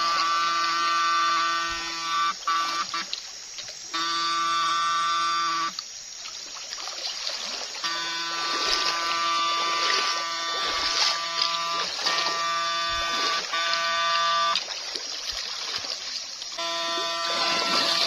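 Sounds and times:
electrofishing shocker buzzing: 0:00.0 - 0:03.2, 0:03.9 - 0:05.8, 0:07.5 - 0:15.1, 0:16.4 - 0:18.0
stream water rushing and splashing: 0:00.0 - 0:18.0.

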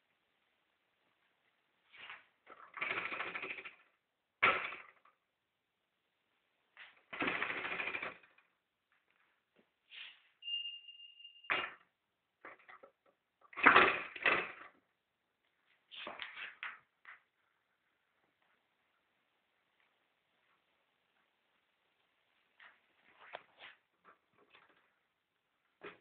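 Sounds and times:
metallic ringing tone: 0:10.4 - 0:11.5.

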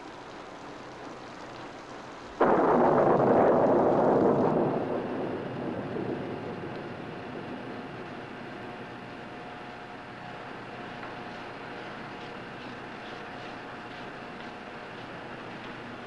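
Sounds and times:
steady rain: 0:00.0 - 0:16.0
thunderclap rumbling: 0:02.3 - 0:12.9.

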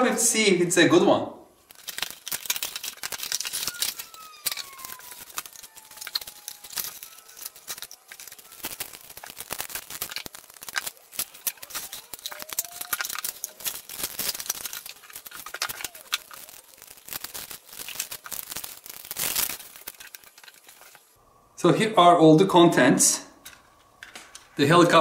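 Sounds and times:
cardboard rustles and crinkles: 0:01.6 - 0:21.2
cardboard squeak: 0:03.3 - 0:16.9.

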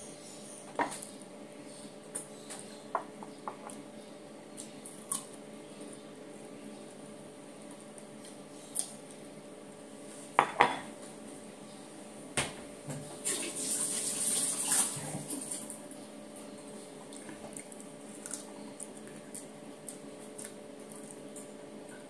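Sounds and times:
dishes clinking: 0:10.4 - 0:10.9.

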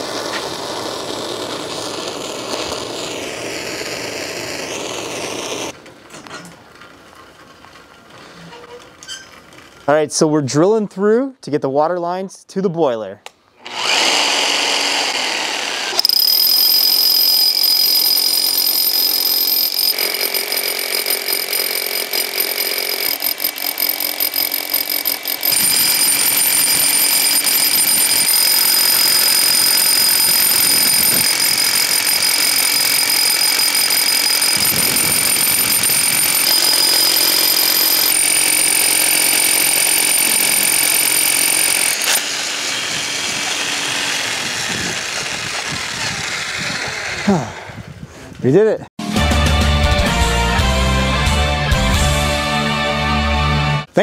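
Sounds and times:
rotary hammer drill boring concrete: 0:00.0 - 0:05.8, 0:13.6 - 0:47.9.

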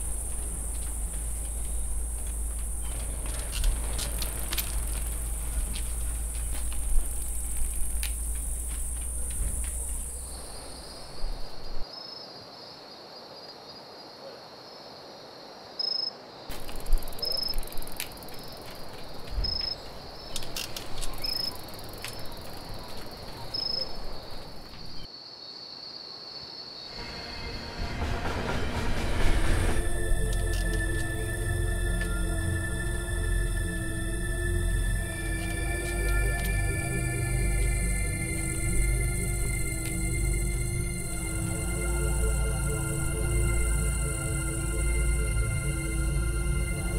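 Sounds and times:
crickets trilling: 0:00.0 - 0:46.9
music: 0:27.0 - 0:46.9.

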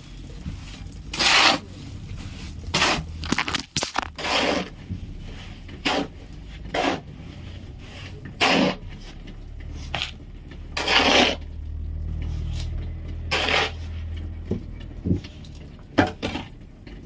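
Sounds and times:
shovels scraping wet concrete: 0:00.2 - 0:11.5, 0:12.2 - 0:14.2
low machine hum: 0:09.2 - 0:15.8.

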